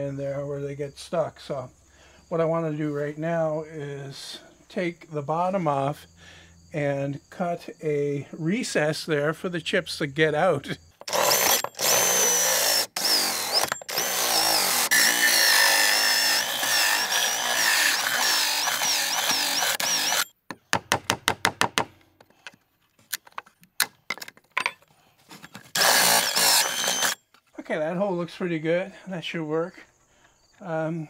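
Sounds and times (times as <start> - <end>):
drill with hole saw cutting wood: 11.0 - 20.3, 25.7 - 27.2.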